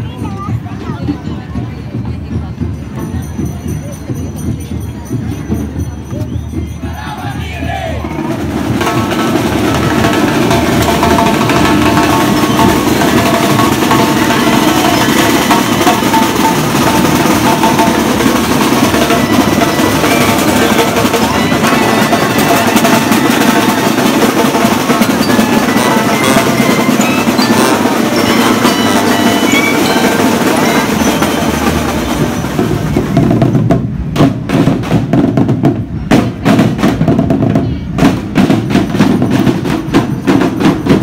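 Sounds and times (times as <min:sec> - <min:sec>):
snare and bass drums: 0:08.0 - 0:41.0
pitched notes ringing: 0:08.9 - 0:33.2.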